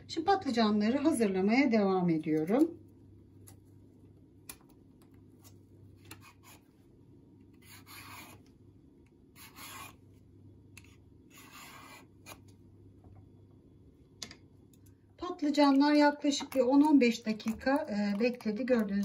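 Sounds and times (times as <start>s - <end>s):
vegetable peeler rasping: 7.6s - 8.4s, 9.4s - 10.0s, 11.3s - 12.4s.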